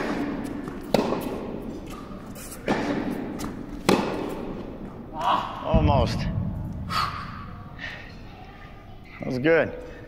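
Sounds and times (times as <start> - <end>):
racket hitting tennis ball: 0.0 - 5.0
tennis ball bouncing: 0.0 - 5.0.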